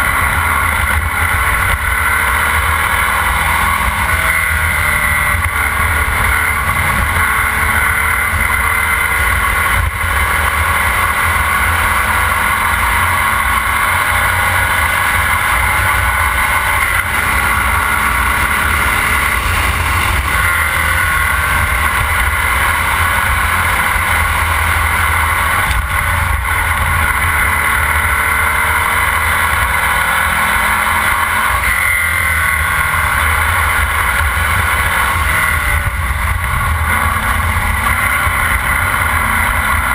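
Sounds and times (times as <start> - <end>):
race car engine running hard: 0.0 - 39.9.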